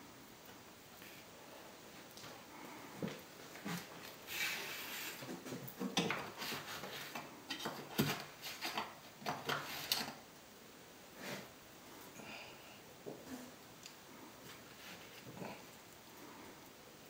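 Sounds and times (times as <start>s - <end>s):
hand tool scraping a stone wall: 3.6s - 10.2s.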